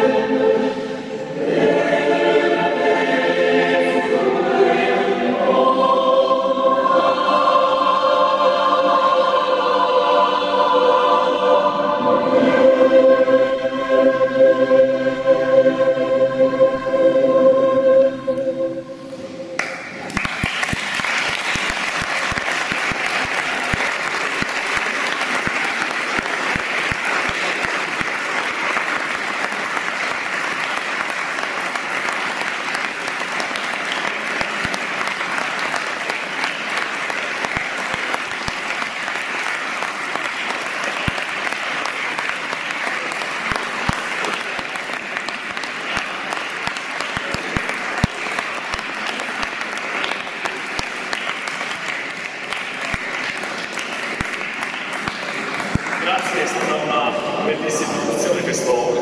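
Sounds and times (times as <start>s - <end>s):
choir singing: 0.0s - 20.1s, 56.0s - 59.0s
applause: 19.6s - 57.1s.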